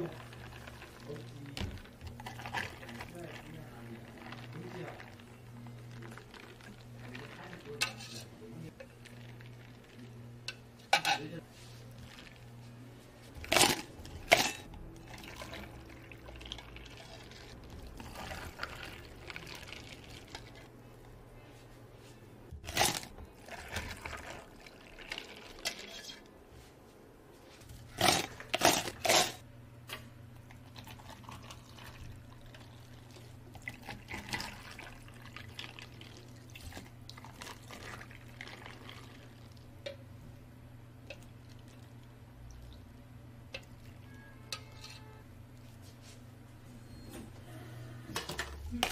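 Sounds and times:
liquid poured into plastic cups: 0:00.0 - 0:07.9, 0:08.7 - 0:10.2, 0:15.0 - 0:20.7, 0:22.7 - 0:26.1, 0:30.5 - 0:39.7, 0:41.0 - 0:42.9
cups and utensils clattering: 0:07.1 - 0:08.4, 0:10.4 - 0:11.4, 0:13.4 - 0:15.7, 0:43.6 - 0:45.2.

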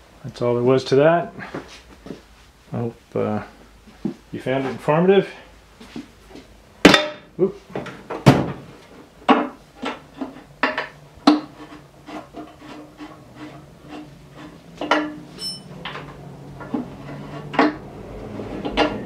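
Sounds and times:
sharp knocks against metal: 0:09.3 - 0:11.6, 0:14.8 - 0:15.2
rag rubbing on metal casing: 0:11.3 - 0:15.5, 0:16.6 - 0:17.8.

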